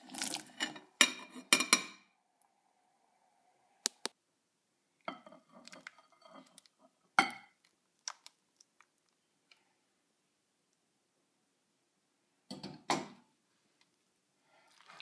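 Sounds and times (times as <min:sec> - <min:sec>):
thick sauce squelching and plopping: 0:00.0 - 0:00.6, 0:07.6 - 0:09.3, 0:14.6 - 0:15.0.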